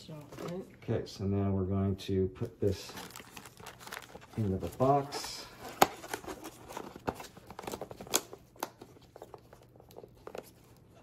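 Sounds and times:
cardboard box being folded: 0:02.9 - 0:08.3.

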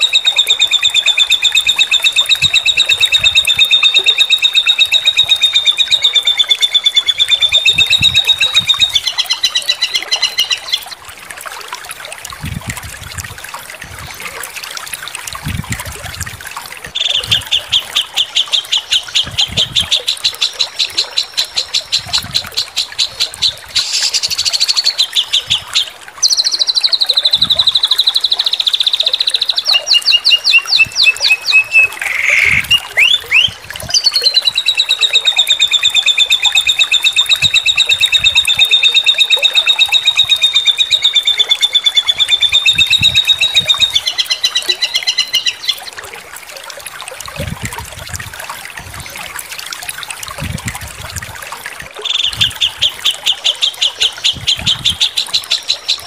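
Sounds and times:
songbird trilling: 0:00.0 - 0:10.9, 0:17.0 - 0:45.8.

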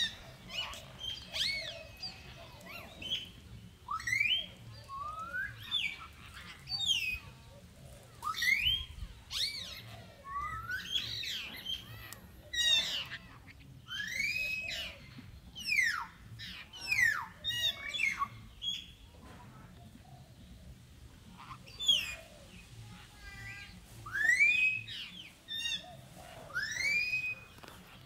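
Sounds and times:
high-pitched animal squeals: 0:26.5 - 0:27.5.

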